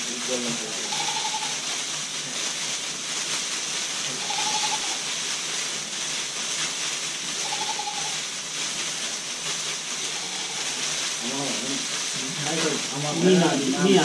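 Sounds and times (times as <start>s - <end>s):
leafy branches rustling: 0.0s - 14.0s.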